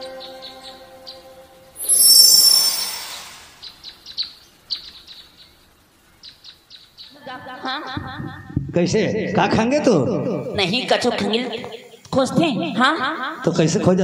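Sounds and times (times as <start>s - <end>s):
music with wavering tone: 0.0s - 3.4s
birds chirping: 0.0s - 7.2s
rushing whoosh with shimmer: 1.8s - 3.8s.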